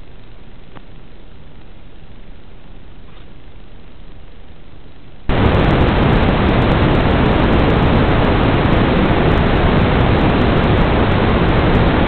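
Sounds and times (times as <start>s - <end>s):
white-noise static: 0.0s - 12.0s.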